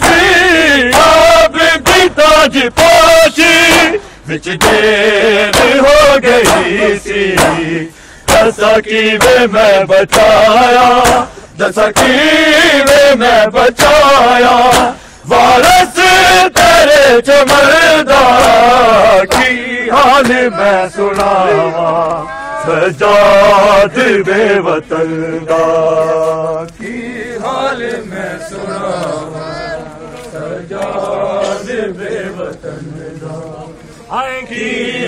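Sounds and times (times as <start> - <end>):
men chanting together: 0.0 - 35.0
hands slapping chests: 7.4 - 7.7, 8.3 - 8.5, 14.7 - 15.0, 19.3 - 19.6, 21.1 - 21.4.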